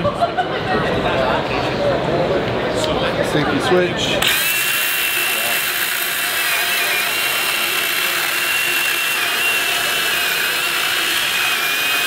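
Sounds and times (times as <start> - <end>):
chainsaw cutting log: 4.2 - 12.0.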